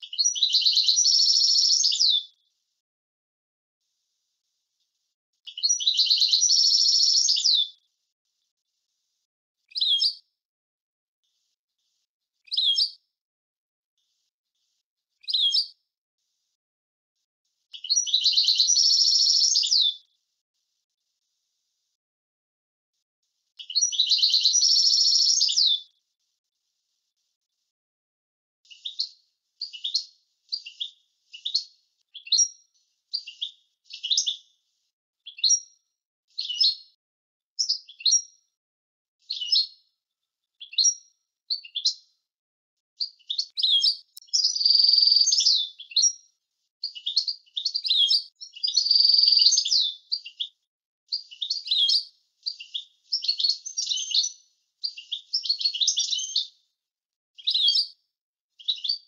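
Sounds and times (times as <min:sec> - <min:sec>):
goldfinch singing: 0:00.0 - 0:02.2, 0:05.5 - 0:07.7, 0:17.8 - 0:19.9, 0:23.6 - 0:25.8, 0:43.0 - 0:46.1, 0:46.8 - 0:50.5, 0:51.2 - 0:56.5.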